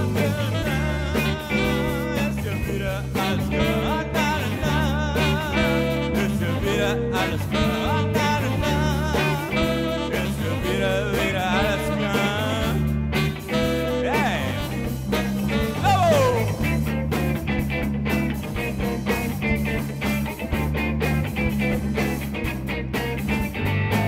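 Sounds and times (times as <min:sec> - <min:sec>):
song with singing voice: 0:00.0 - 0:17.0
sustained bass notes: 0:00.0 - 0:24.0.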